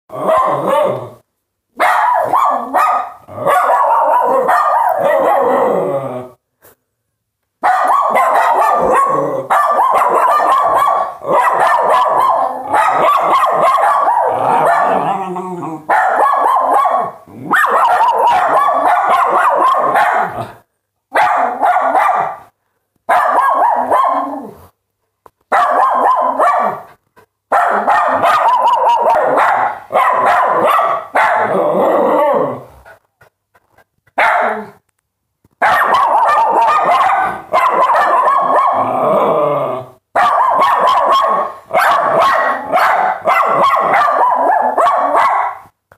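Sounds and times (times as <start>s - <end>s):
small dogs yapping: 1.8s - 5.6s, 7.6s - 20.4s, 23.1s - 24.5s, 27.6s - 31.7s, 35.6s - 39.0s, 40.2s - 45.6s.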